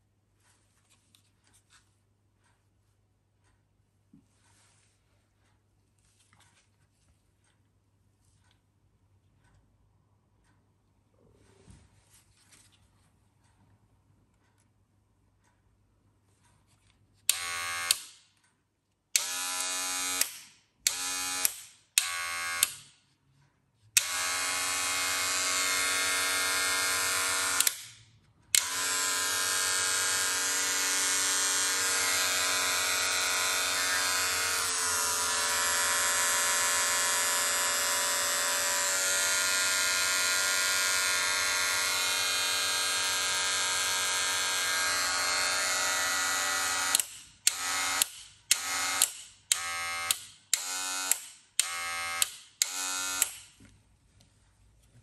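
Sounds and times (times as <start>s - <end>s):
hair clippers buzzing: 17.3s - 18.1s, 19.2s - 22.9s, 24.0s - 53.6s.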